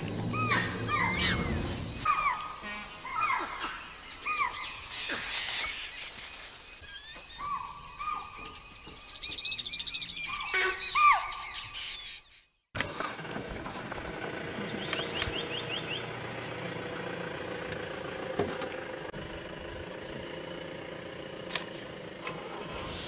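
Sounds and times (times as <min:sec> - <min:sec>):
birds chirping: 0:00.0 - 0:12.7, 0:13.3 - 0:18.2
high bird twittering: 0:00.3 - 0:12.4.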